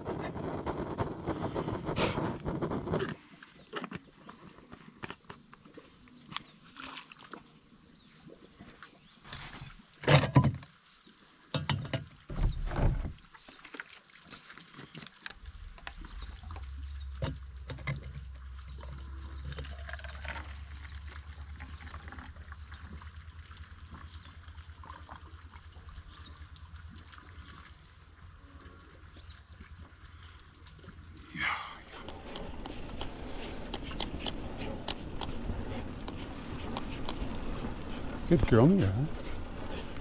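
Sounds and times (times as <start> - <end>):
coffee pouring into metal mug: 17.2 - 26.6.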